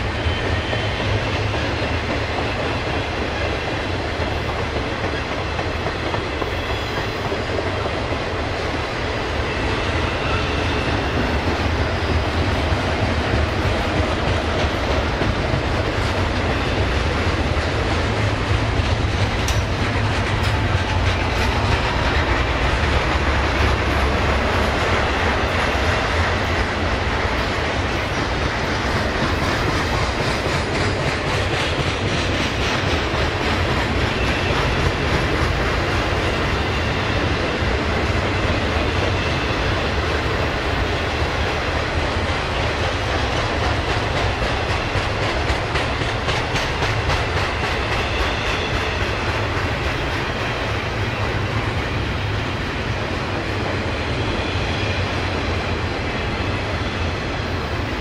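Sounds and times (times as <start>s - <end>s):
freight train rumble: 0.0s - 58.0s
wheels clicking over rail joints: 11.2s - 36.4s, 41.5s - 50.6s.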